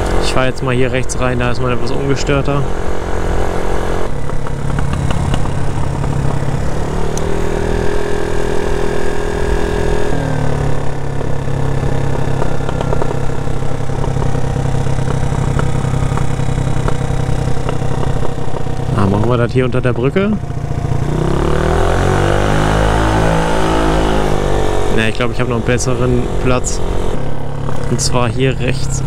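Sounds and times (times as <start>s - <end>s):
scooter engine running: 0.0s - 29.0s.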